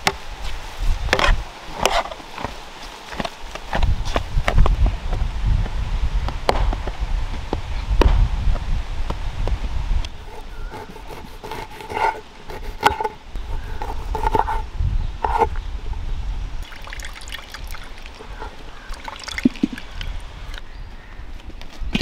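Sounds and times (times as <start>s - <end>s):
juice dripping into pot: 16.6s - 20.6s.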